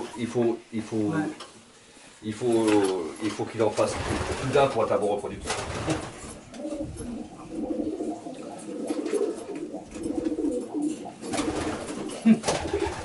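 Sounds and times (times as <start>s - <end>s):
pigeons cooing: 6.1s - 13.0s.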